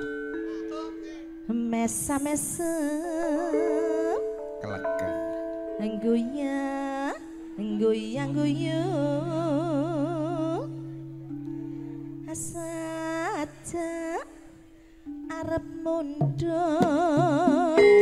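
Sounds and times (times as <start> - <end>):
person singing with vibrato: 0.0 - 11.0, 15.3 - 18.0.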